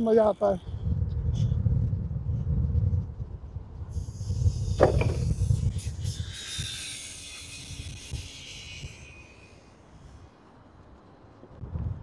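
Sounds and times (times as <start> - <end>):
wind on microphone: 0.0 - 10.4, 11.4 - 12.0
hiss: 3.9 - 10.4
scooter wheel noise: 4.4 - 8.8.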